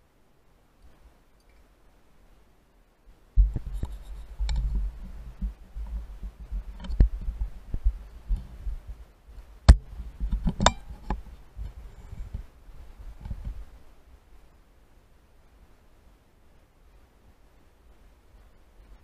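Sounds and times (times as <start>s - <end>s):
handling bumps and thumps: 3.4s - 13.6s.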